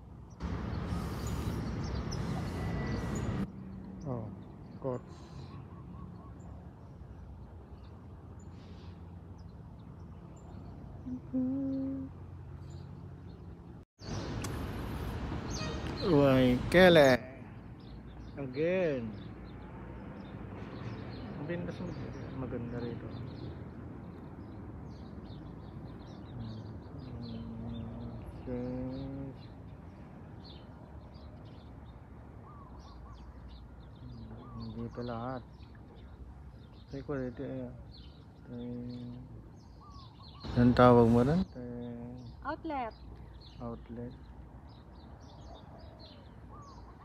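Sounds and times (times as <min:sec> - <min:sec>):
low outdoor drone: 0:00.0 - 0:21.6
outdoor background noise: 0:00.0 - 0:47.0
small birds chirping: 0:00.0 - 0:47.0
low voice-like tones: 0:11.0 - 0:12.2, 0:26.3 - 0:29.4
person humming: 0:11.0 - 0:12.2, 0:26.3 - 0:29.4.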